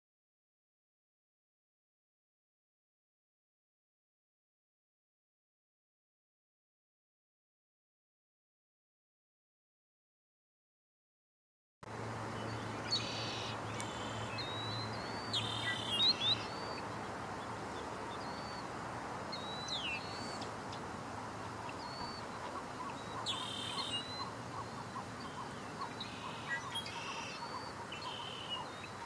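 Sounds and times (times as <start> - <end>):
small birds chirping and whistling: 12.4 - 18.7, 19.3 - 29.0.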